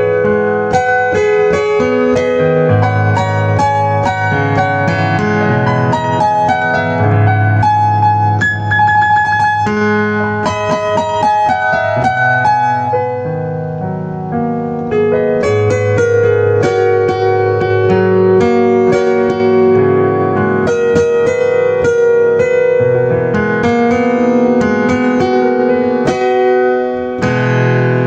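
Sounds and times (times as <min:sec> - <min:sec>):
solo piano melody: 0:00.0 - 0:28.0.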